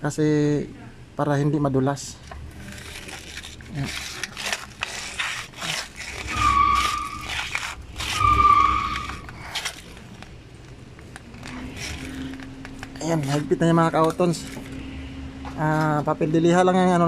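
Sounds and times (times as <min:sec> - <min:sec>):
oil filter squeaks: 0:02.4 - 0:10.4
sandpaper rustling and scraping: 0:02.6 - 0:10.0.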